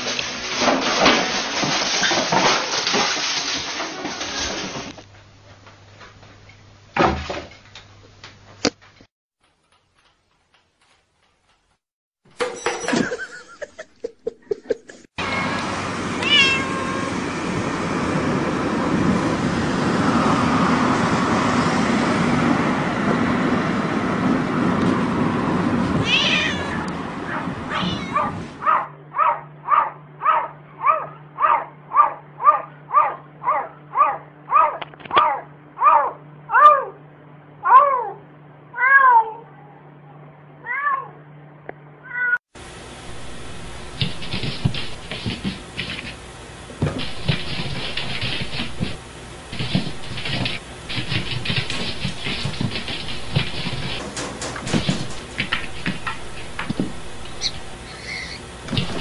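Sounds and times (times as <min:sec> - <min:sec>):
cat meowing: 0:15.2 - 0:17.2, 0:26.0 - 0:28.4.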